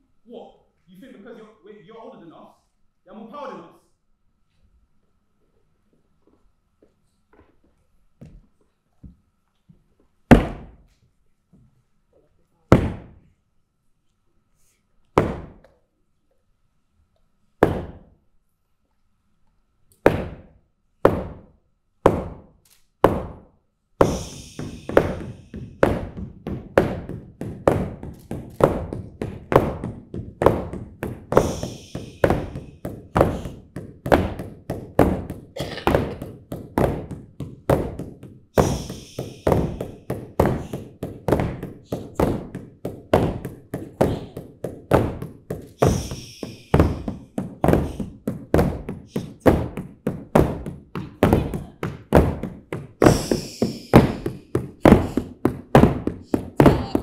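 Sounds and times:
performers hushing: 0:24.0 - 0:26.2, 0:31.2 - 0:33.6, 0:38.6 - 0:40.9, 0:45.5 - 0:48.2, 0:53.0 - 0:55.5, 0:56.1 - 0:57.0
wooden staffs knocking on floor: 0:24.0 - 0:57.0.

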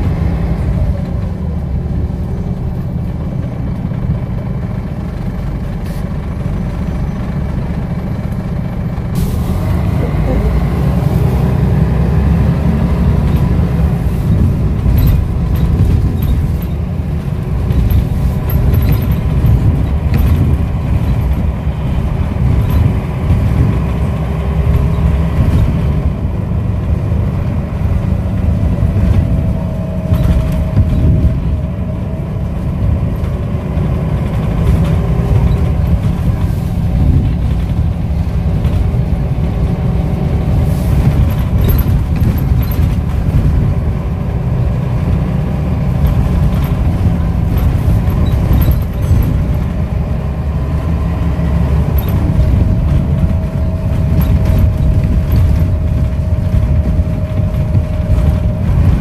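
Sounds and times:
bus engine and road rumble: 0:00.0 - 0:59.0
light rattles: 0:13.1 - 0:25.9, 0:26.8 - 0:44.0, 0:45.9 - 0:50.1, 0:50.7 - 0:59.0.

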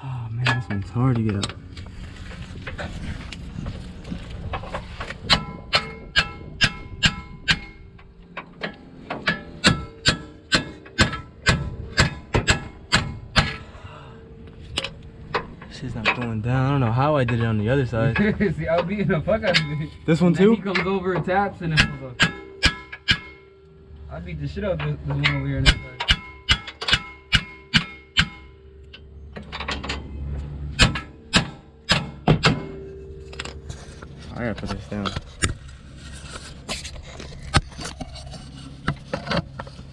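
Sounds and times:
hammer striking steel: 0:05.3 - 0:08.0, 0:08.6 - 0:13.7, 0:20.7 - 0:23.7, 0:25.2 - 0:30.0, 0:30.8 - 0:33.5.

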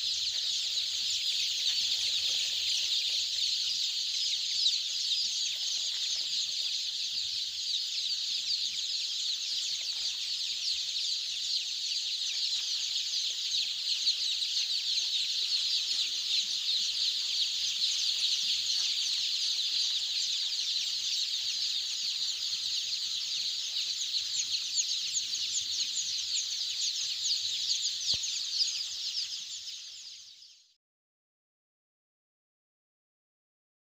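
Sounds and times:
chicks peeping: 0:00.0 - 0:30.7.

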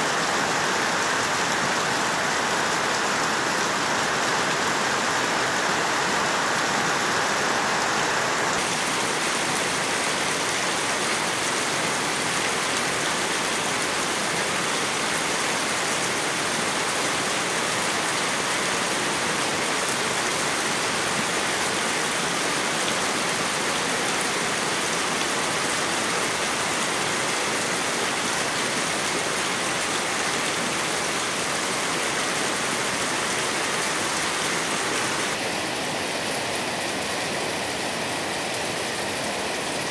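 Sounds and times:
heavy rain falling: 0:00.0 - 0:39.9
rainwater splashing onto stones: 0:08.6 - 0:37.7.

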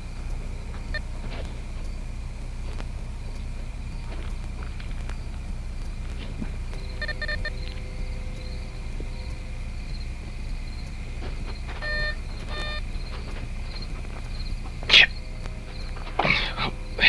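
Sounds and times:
faint steady hum and hiss: 0:00.0 - 0:17.0
metal detector beeps: 0:06.8 - 0:08.6, 0:11.4 - 0:13.4.

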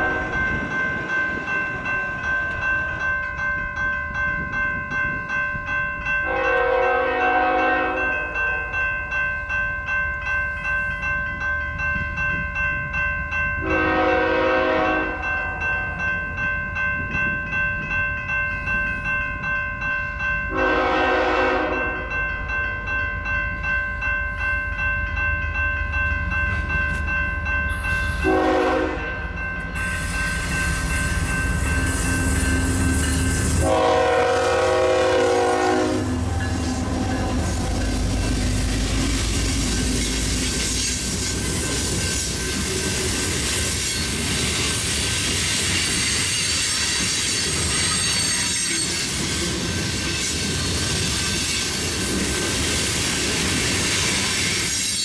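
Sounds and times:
locomotive horn blasts: 0:00.0 - 0:00.4, 0:06.2 - 0:08.7, 0:13.6 - 0:15.3, 0:20.5 - 0:22.0, 0:28.2 - 0:29.2, 0:33.4 - 0:37.8
train rumble: 0:00.0 - 0:10.0, 0:10.6 - 0:55.0
crossing bell ringing: 0:00.0 - 0:55.0.

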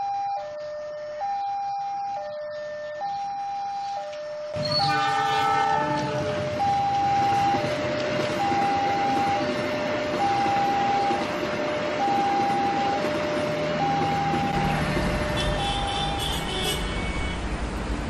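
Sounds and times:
level-crossing alarm two-tone signal: 0:00.0 - 0:14.7
toy train horn chord: 0:04.6 - 0:06.6.

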